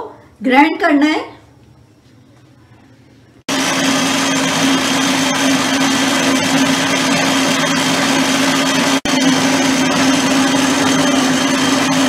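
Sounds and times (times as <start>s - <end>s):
stand mixer motor whine: 3.5s - 12.0s.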